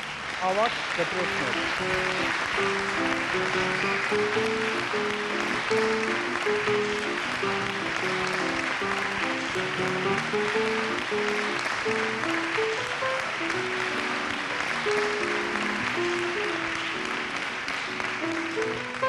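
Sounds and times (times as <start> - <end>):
audience applauding: 0.0 - 19.0
instrumental music: 1.2 - 19.0.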